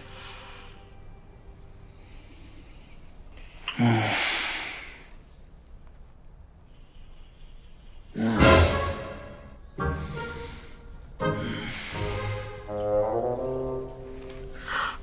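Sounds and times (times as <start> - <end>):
person breathing loudly: 0.0 - 5.2, 9.8 - 12.7, 14.5 - 15.0.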